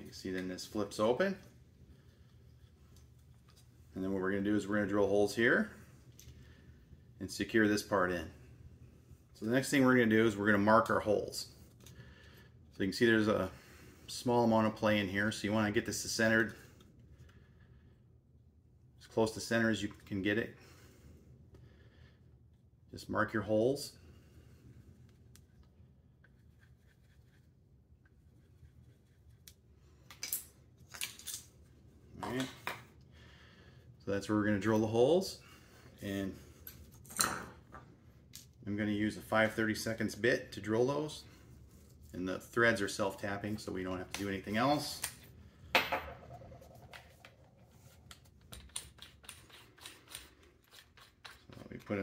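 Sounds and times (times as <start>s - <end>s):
pencil scratching on plastic: 26.2s - 29.5s, 48.6s - 52.0s.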